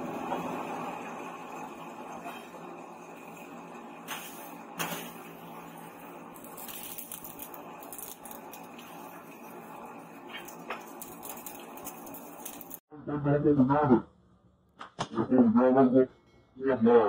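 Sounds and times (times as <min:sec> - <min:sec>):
steady fire hiss: 0:00.6 - 0:12.8
charcoal clinking and crackling: 0:04.0 - 0:12.8.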